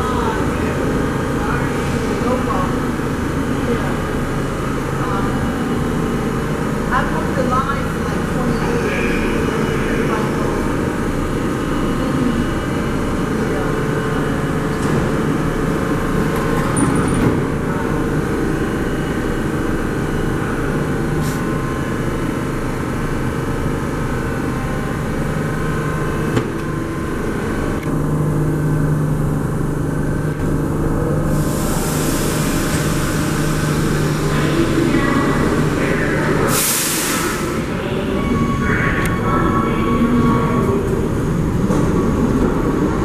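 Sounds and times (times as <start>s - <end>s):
subway train humming: 0.0s - 43.0s
loud air blast: 31.3s - 33.4s, 36.5s - 37.7s
air hissing: 31.3s - 34.6s, 36.5s - 37.7s.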